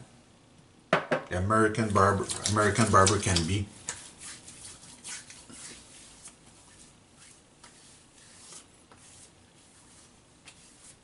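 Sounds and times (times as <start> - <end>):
hands rubbing skin: 2.0 - 11.0
soft pats on skin: 3.0 - 11.0.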